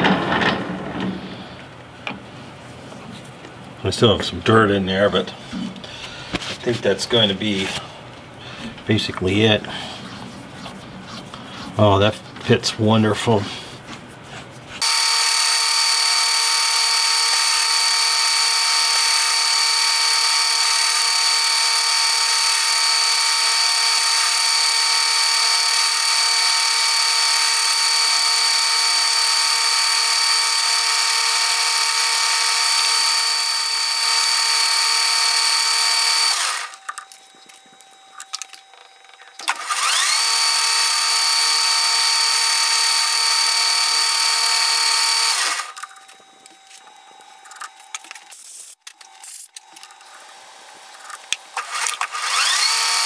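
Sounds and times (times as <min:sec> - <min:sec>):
metal lathe whining: 0:14.8 - 0:47.0, 0:51.6 - 0:53.0.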